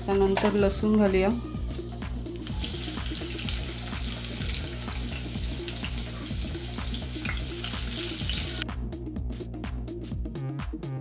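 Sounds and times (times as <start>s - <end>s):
garlic sizzling in hot oil: 0.0s - 8.6s.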